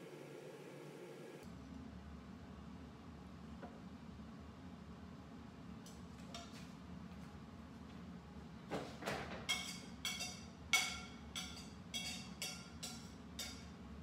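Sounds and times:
metal utensil clinking on pot: 9.5s - 13.7s
utensil scraping pot: 9.5s - 13.7s.

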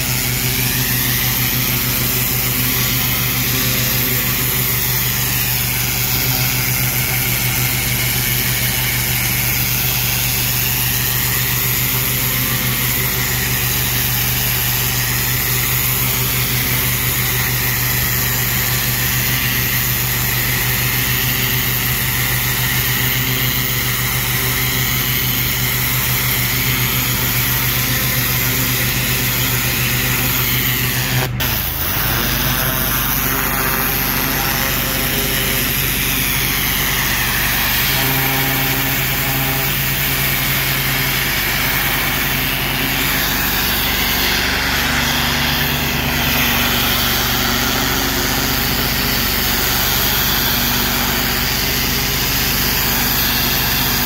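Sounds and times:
pressure washer engine running: 0.0s - 54.0s
water jet hissing on brick wall: 0.0s - 54.0s.

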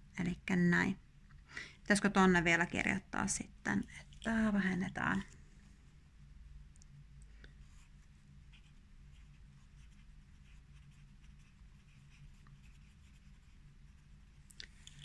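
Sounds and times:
pencil scratching on paper: 8.5s - 14.2s.

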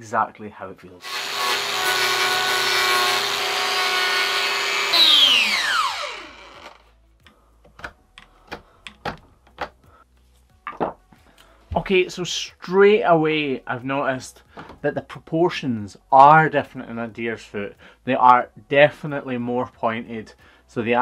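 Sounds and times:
angle grinder grinding: 1.0s - 6.9s.

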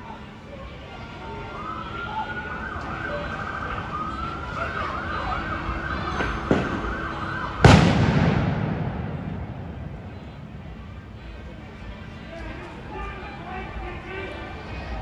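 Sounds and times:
sharp crack: 7.6s - 10.6s.

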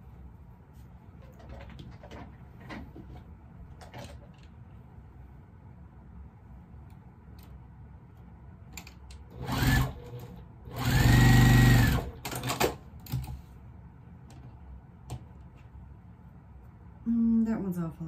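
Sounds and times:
electric sewing machine stitching: 9.3s - 12.8s.

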